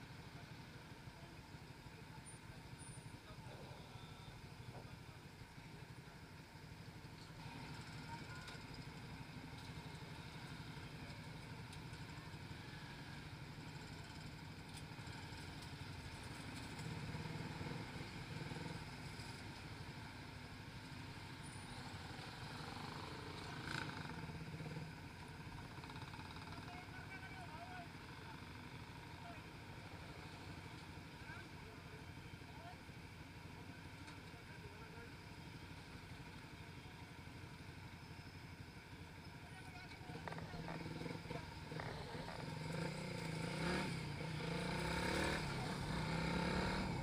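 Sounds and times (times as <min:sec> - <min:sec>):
motorcycle engine idling: 0:19.0 - 0:47.0.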